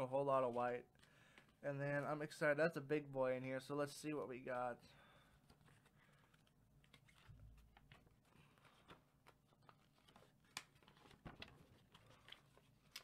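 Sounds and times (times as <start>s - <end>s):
paper rustling: 5.5s - 13.0s.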